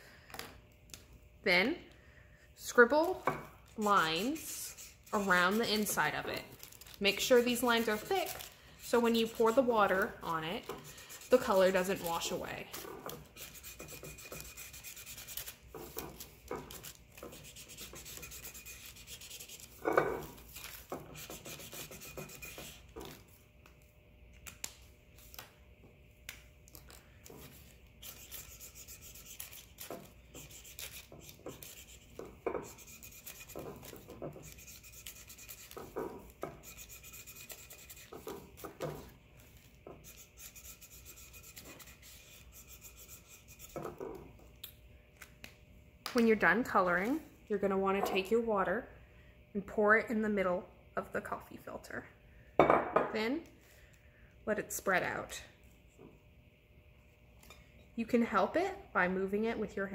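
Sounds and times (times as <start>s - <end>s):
marker scribbling on paper: 17.3s - 19.8s, 21.1s - 22.8s, 28.0s - 29.8s, 30.4s - 35.8s, 36.6s - 38.3s.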